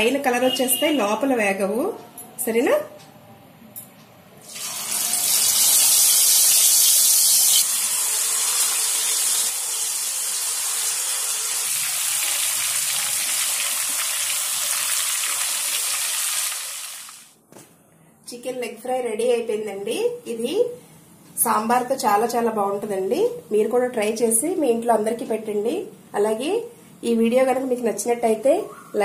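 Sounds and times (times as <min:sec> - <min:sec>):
chicken deep-frying in oil: 0:04.5 - 0:17.3.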